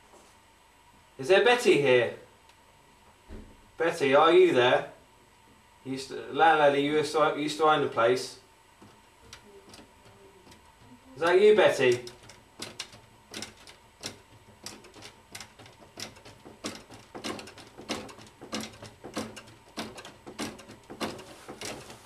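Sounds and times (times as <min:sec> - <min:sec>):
folding table knocking on floor: 0:11.9 - 0:22.0.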